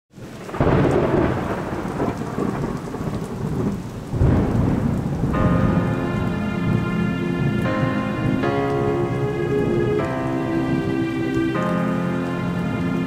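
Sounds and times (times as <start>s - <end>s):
steady rain: 0.1s - 13.0s
thunder rolling: 0.2s - 13.0s
music with sustained chords: 5.4s - 13.0s.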